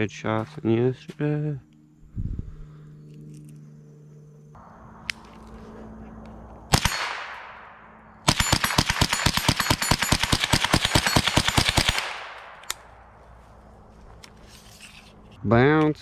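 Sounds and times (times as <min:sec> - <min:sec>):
rifle shots: 0:06.7 - 0:13.0.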